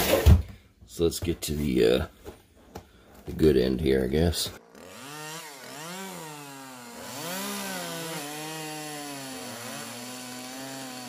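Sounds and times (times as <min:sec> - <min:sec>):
knife sawing through cardboard: 0:05.0 - 0:11.0.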